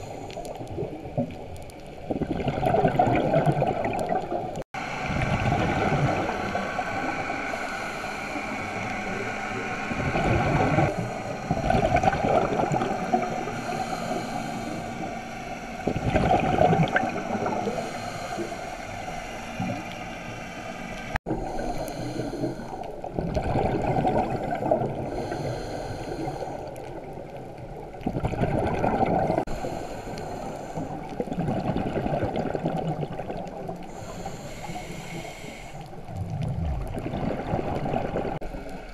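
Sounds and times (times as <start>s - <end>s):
exhaled bubbles rushing: 2.1s - 7.4s, 8.4s - 13.8s, 15.8s - 17.8s, 23.0s - 25.2s, 27.9s - 29.5s, 31.1s - 33.8s, 36.0s - 38.4s
watery hiss: 4.8s - 27.2s, 29.3s - 31.6s, 33.6s - 38.9s.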